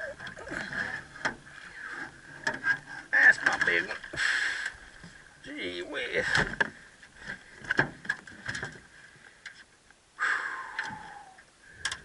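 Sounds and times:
knocks and clatter on metal boat: 0.2 - 1.5, 2.1 - 4.1, 6.3 - 8.8.

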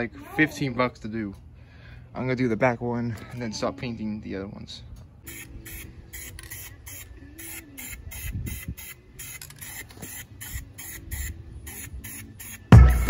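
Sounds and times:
spray paint hissing bursts: 5.2 - 13.0.

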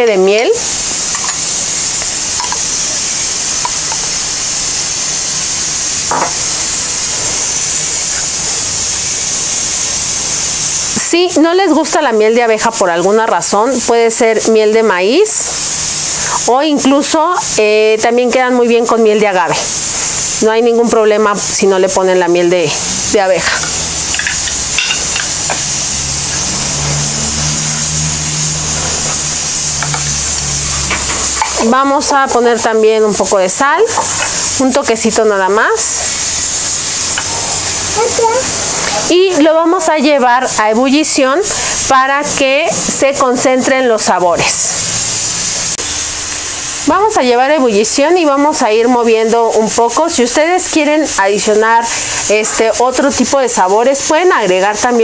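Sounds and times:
steady high hiss: 0.0 - 55.0
low hum: 25.4 - 31.6.

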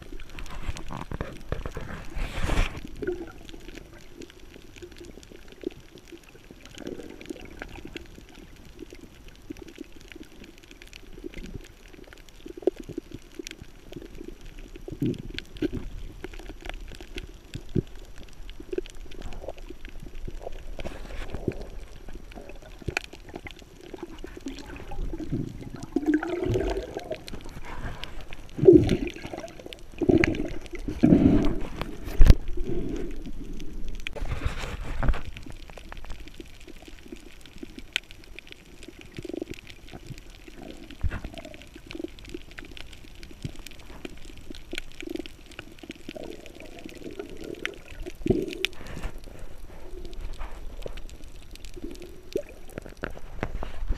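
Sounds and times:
underwater bubbles gurgling: 0.0 - 53.9
breath in through regulator: 24.2 - 35.0.

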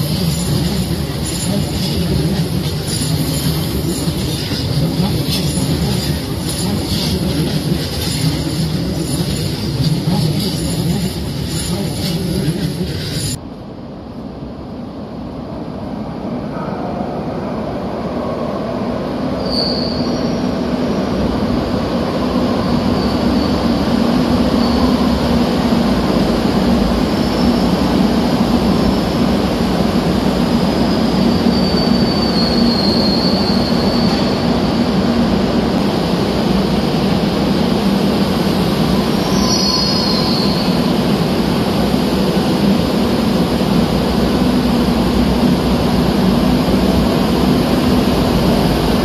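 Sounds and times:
train rumbling on rails: 0.0 - 49.0
wheel squeals: 19.4 - 20.4.

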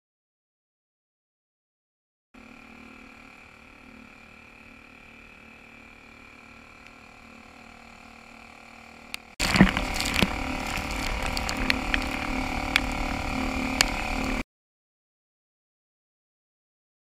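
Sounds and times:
faint steady hum: 2.4 - 14.4
gear knocks and clicks: 9.4 - 13.0
water splashing at kayak hull: 9.4 - 13.2.

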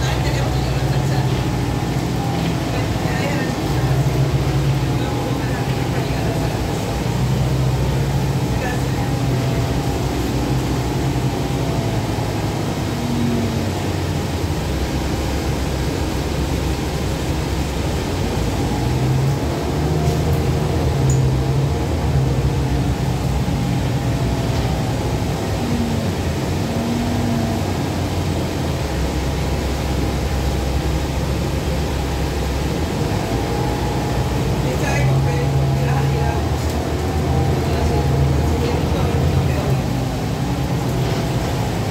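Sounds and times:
bus engine drone: 0.0 - 41.9
road noise: 0.0 - 41.9.

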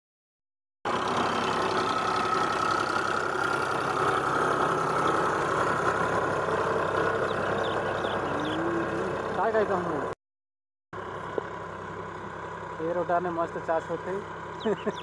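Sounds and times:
tractor diesel engine running: 0.9 - 10.2, 11.0 - 15.0.

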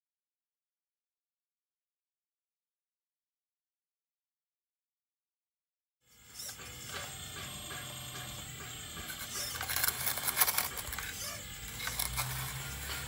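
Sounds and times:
hydraulic pump humming: 6.1 - 13.0
steel bucket scraping gravel: 9.1 - 13.0.

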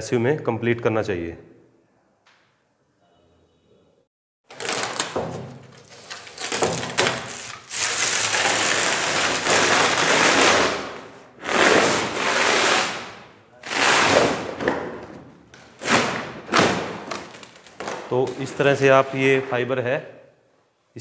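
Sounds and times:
mesh backing tearing off stone: 4.5 - 11.0.

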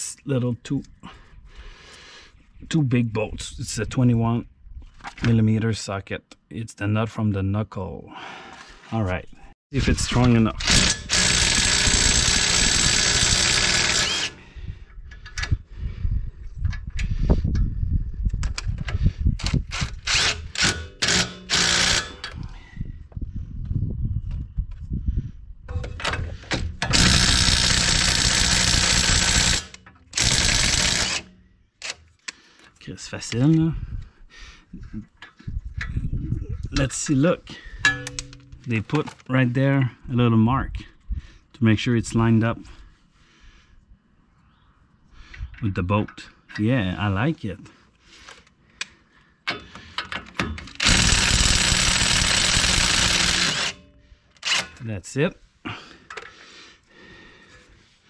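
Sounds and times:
impact wrench hammering: 20.1 - 22.3, 25.7 - 31.4, 49.5 - 53.8.

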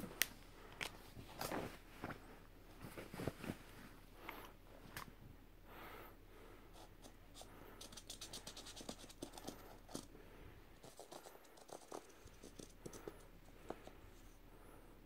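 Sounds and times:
marker scribbling: 6.8 - 10.0.

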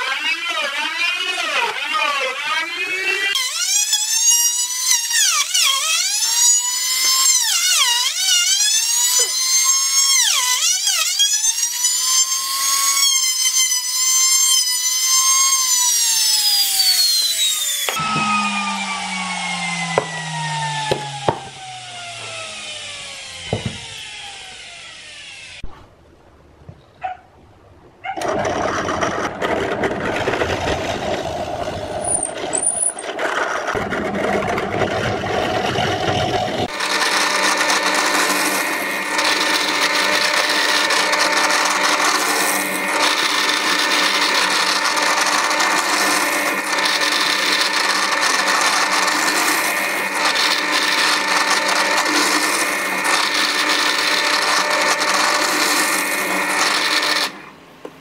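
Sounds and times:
drill boring through plywood: 0.0 - 25.6, 28.2 - 57.6
drill press motor running: 14.9 - 25.6, 28.2 - 57.6
thin steady whine: 17.9 - 23.5.

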